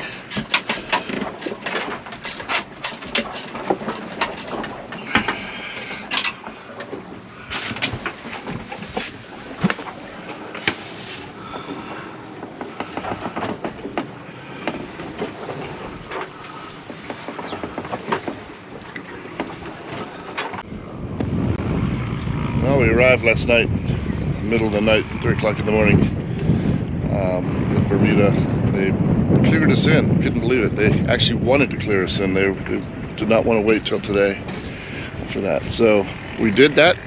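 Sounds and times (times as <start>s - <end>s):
hard objects clattering: 0.0s - 19.7s.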